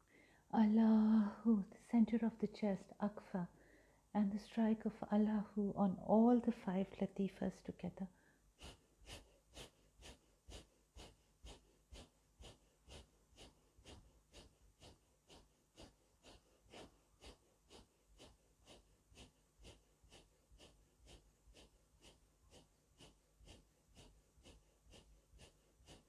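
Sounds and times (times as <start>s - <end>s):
rhythmic breathing through nose: 0.0s - 0.5s, 3.5s - 4.1s, 8.1s - 26.0s.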